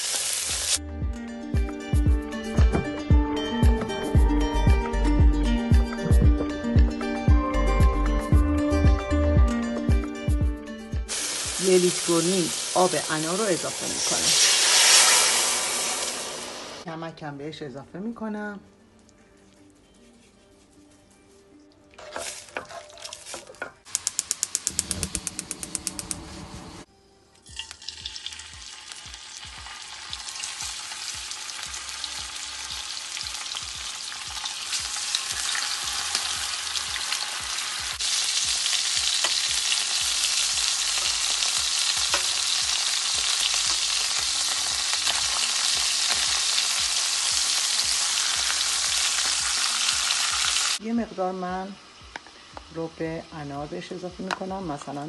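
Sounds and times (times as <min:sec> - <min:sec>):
chicken sizzling in hot oil: 0:00.0 - 0:00.8, 0:11.1 - 0:16.8, 0:22.1 - 0:26.9, 0:27.5 - 0:50.8
fast run of clicks: 0:23.9 - 0:26.4.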